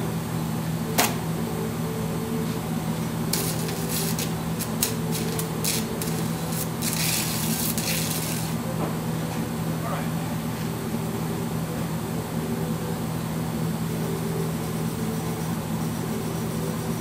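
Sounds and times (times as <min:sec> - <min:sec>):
steady low hum: 0:00.0 - 0:17.0
welding arc crackling: 0:03.0 - 0:08.6.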